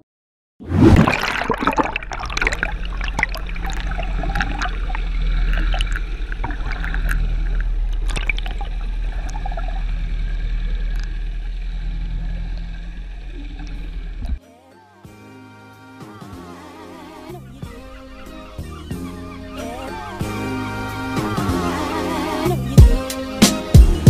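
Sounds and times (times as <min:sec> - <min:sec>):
low underwater rumble: 0:00.7 - 0:14.4
underwater bubbles gurgling: 0:00.7 - 0:14.4.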